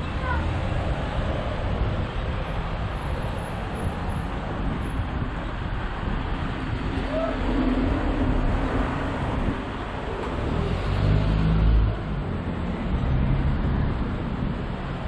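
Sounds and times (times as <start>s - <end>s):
street traffic: 0.0s - 15.0s.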